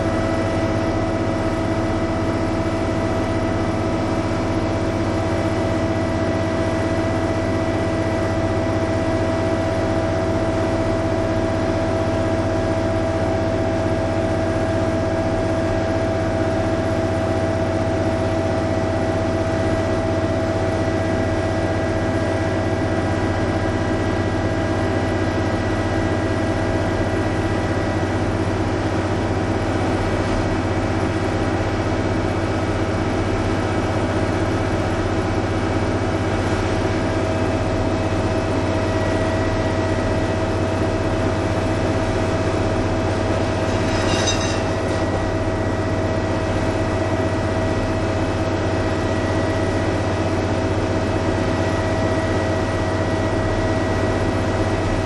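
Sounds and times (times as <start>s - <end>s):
diesel railcar droning hum: 0.0s - 55.0s
buzzing whine: 42.3s - 48.4s.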